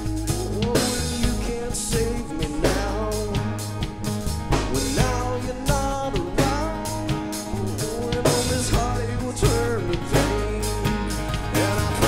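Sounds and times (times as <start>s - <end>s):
live rock band playing: 0.0s - 12.0s.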